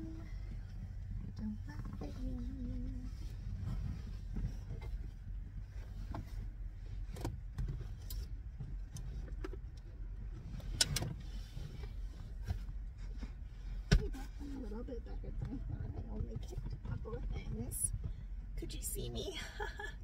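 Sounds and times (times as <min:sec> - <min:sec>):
knocks and rustling of climbing: 0:00.0 - 0:14.6
steady low rumble: 0:00.0 - 0:20.0.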